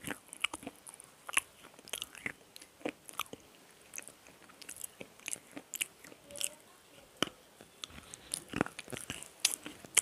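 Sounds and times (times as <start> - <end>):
chewing crunchy slate pencil: 7.8 - 10.0.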